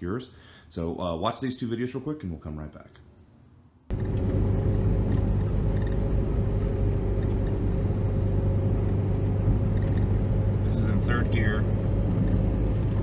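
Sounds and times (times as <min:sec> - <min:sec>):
car engine and road noise inside cabin: 0:03.9 - 0:13.0.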